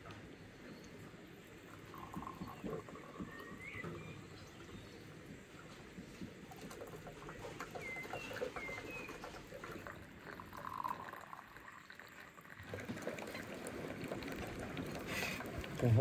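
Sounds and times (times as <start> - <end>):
liquid pouring into glass cups: 0.8 - 4.9, 6.2 - 16.0
bird chirps: 2.0 - 5.1, 7.2 - 10.0.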